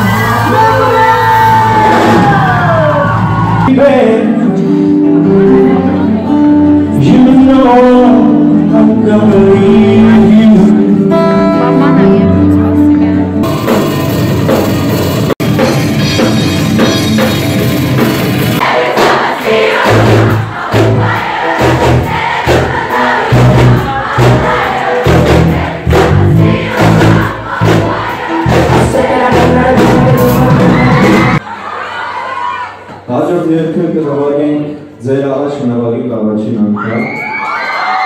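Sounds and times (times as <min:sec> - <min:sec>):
live rock band playing: 0:00.0 - 0:31.4
pounding bass drum beat: 0:13.4 - 0:31.4.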